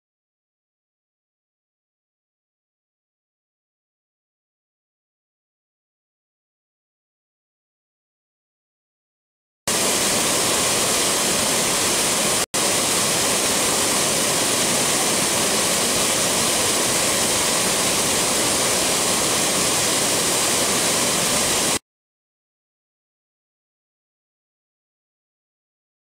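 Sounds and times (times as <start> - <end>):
waterfall rushing: 9.7 - 21.8.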